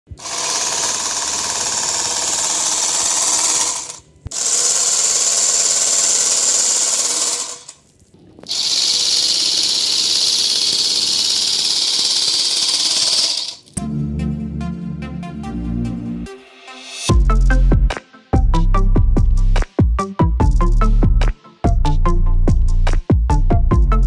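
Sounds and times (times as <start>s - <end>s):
electric sewing machine stitching: 0.1s - 7.8s, 8.5s - 13.7s.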